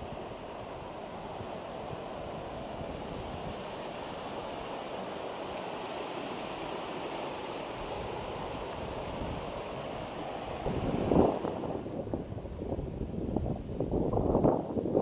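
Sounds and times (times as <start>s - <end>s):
steady rushing noise: 0.0s - 13.5s.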